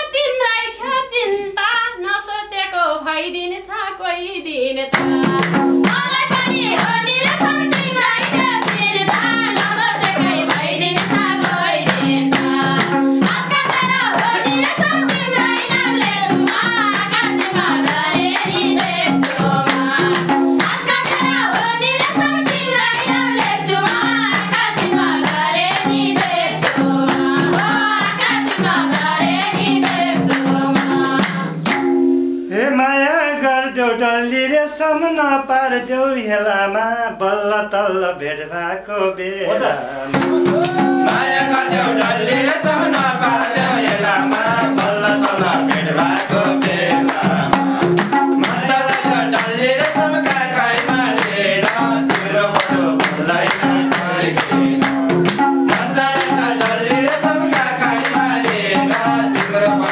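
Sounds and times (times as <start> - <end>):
voices singing: 4.4 - 31.6, 37.2 - 59.9
hands clapping: 4.9 - 31.9, 40.2 - 59.9
hand drum beating: 4.9 - 32.3, 40.1 - 59.9
held accompaniment tones: 4.9 - 32.8, 39.6 - 59.9.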